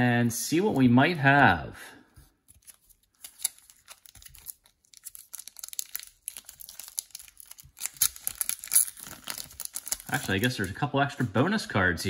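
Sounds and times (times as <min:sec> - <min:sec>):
plastic sleeves clicking and crinkling: 0:02.4 - 0:10.8.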